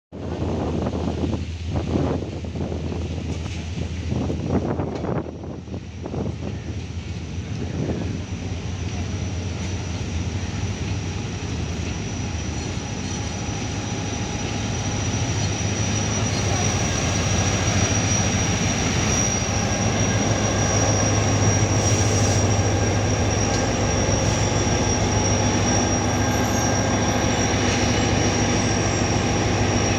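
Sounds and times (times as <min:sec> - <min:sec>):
train rolling noise: 0:00.1 - 0:29.9
locomotive engine drone: 0:00.2 - 0:29.9
thin high whine: 0:09.3 - 0:29.9.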